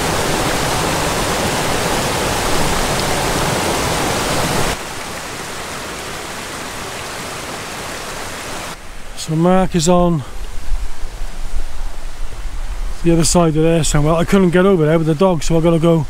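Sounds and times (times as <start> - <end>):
stream rushing over boulders: 0.0 - 16.0.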